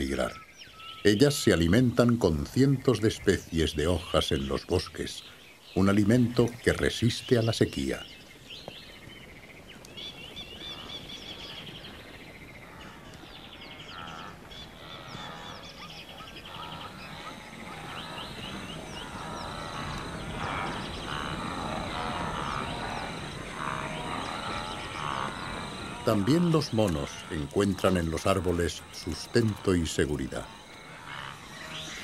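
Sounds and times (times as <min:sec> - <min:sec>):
wildebeest herd calling: 0:00.0 - 0:05.2, 0:10.5 - 0:32.0
birds trilling: 0:00.0 - 0:32.0.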